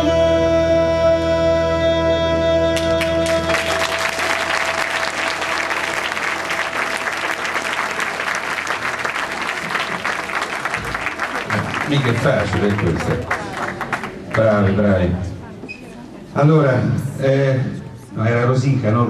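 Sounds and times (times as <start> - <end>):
audience applause: 3.0 - 14.6.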